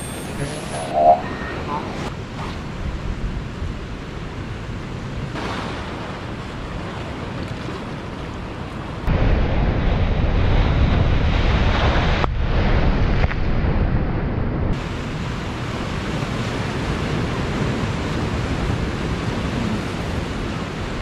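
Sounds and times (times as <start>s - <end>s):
wind on microphone: 9.1s - 21.0s.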